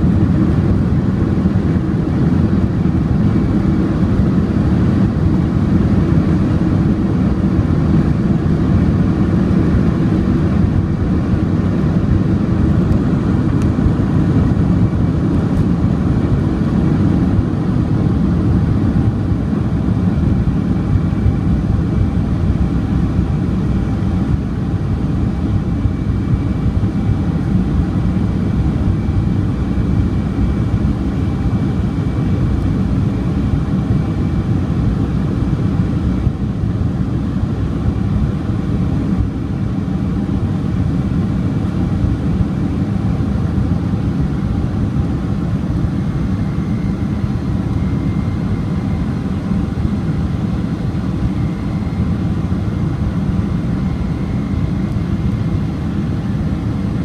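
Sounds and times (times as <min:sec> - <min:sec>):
jet engine and air rush in cabin: 0:00.0 - 0:57.0
faint high whine: 0:41.5 - 0:57.0.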